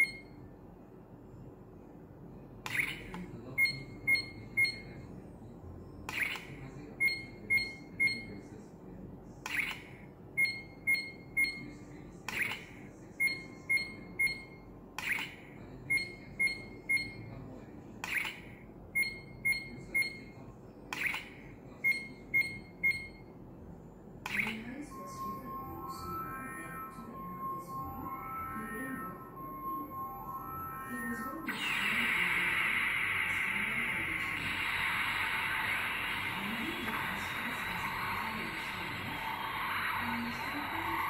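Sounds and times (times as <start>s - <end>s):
electronic radar ping and beeps: 3.6s - 5.0s.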